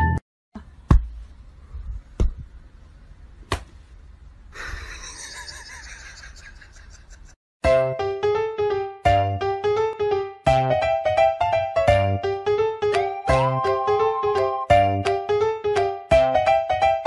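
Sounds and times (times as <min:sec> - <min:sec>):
hand slapping bamboo mat: 0:03.5 - 0:03.8.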